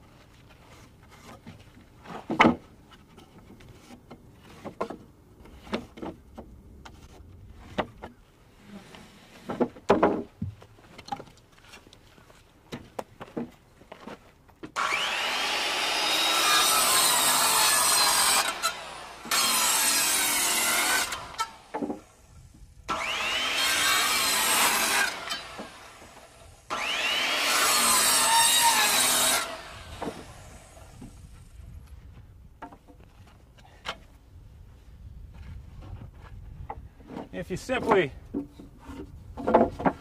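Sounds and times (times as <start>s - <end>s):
circular saw cutting lumber: 14.8s - 22.2s, 22.9s - 31.2s.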